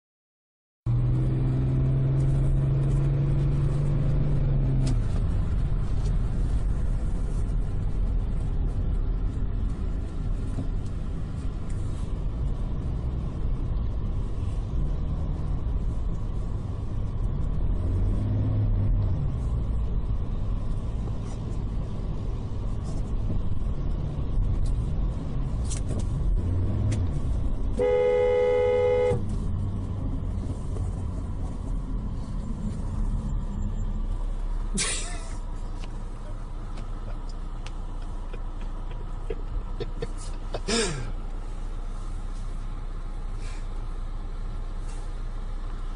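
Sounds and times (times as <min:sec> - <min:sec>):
car road and engine noise: 0:00.9 - 0:45.9
car horn honking: 0:27.8 - 0:29.3.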